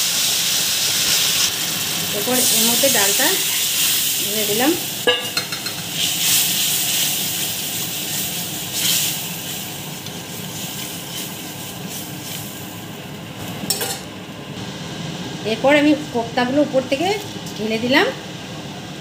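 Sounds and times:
lentils sizzling in a pan: 0:00.0 - 0:13.9.

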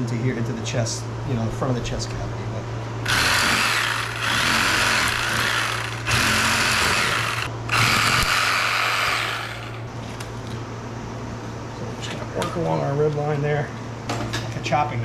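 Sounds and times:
reciprocating saw cutting bone: 0:03.1 - 0:09.8.

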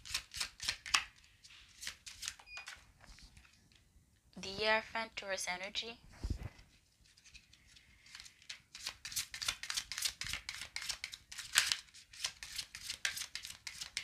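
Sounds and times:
cards being shuffled: 0:00.0 - 0:02.4, 0:06.3 - 0:14.0.

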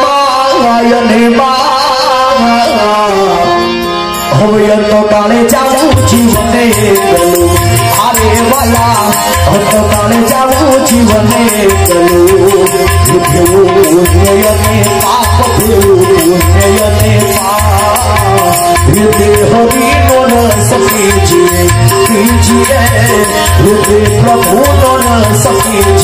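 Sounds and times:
harmonium: 0:00.0 - 0:26.0
person singing: 0:00.0 - 0:26.0
hand drum beat: 0:06.0 - 0:26.0.

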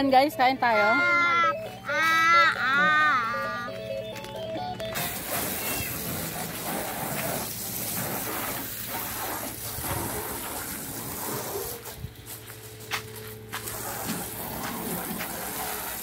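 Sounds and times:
hose water spraying on car: 0:05.0 - 0:12.9, 0:13.5 - 0:16.0.

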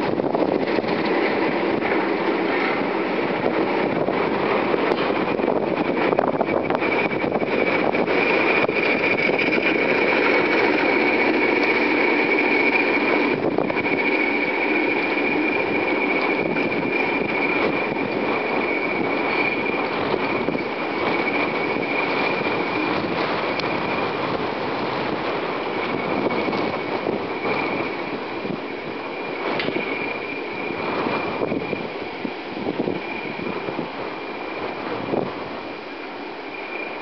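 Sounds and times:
coaches rolling: 0:00.0 - 0:37.0
diesel train engine: 0:00.0 - 0:37.0
thin high whine: 0:00.0 - 0:37.0.

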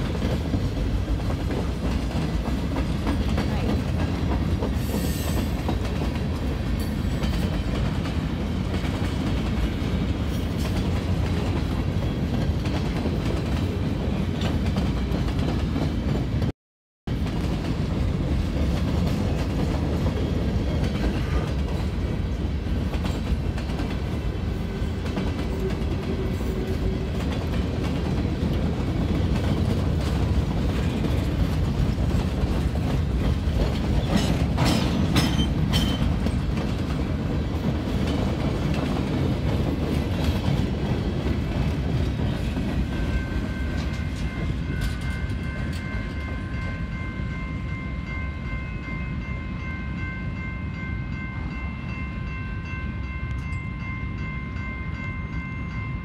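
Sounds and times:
freight train rumbling past: 0:00.0 - 0:16.5, 0:17.1 - 0:56.0
crossing warning bell ringing: 0:42.4 - 0:56.0.

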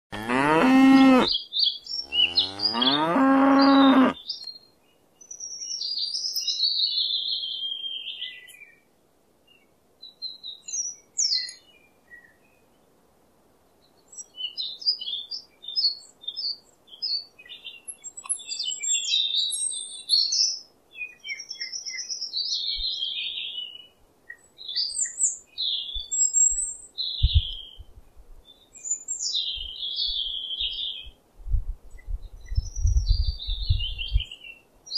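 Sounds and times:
cow mooing: 0:00.1 - 0:01.3, 0:02.1 - 0:04.2
small birds chirping: 0:00.2 - 0:08.9, 0:09.5 - 0:12.9, 0:13.7 - 0:31.2, 0:31.9 - 0:34.9.

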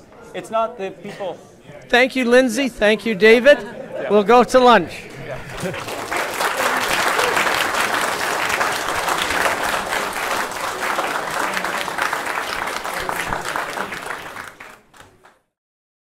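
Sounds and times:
audience applauding: 0:05.0 - 0:15.4.

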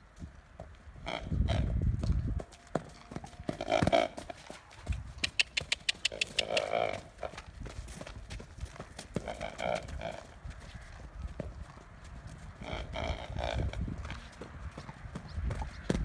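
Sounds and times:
horse making low vocal sounds: 0:05.2 - 0:07.2, 0:12.6 - 0:14.3.

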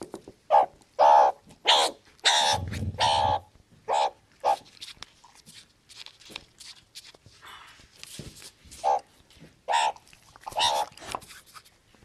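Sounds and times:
harsh animal calls: 0:00.5 - 0:04.6.

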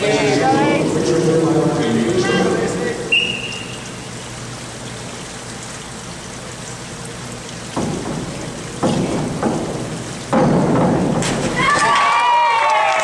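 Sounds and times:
pool hall hiss: 0:00.0 - 0:13.0
high whistle: 0:03.1 - 0:04.0.

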